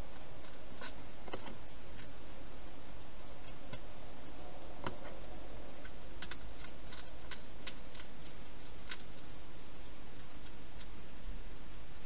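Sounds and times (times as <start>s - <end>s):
steady hiss: 0.0s - 12.0s
hedgehog chewing: 4.8s - 11.1s.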